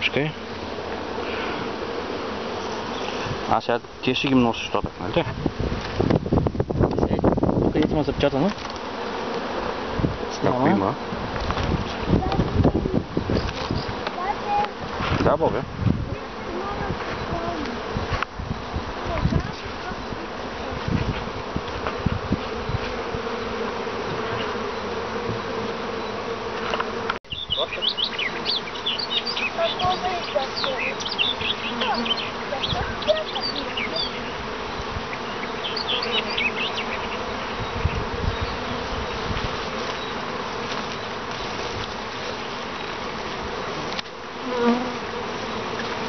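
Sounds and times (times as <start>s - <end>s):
honeybees buzzing: 0.0s - 46.0s.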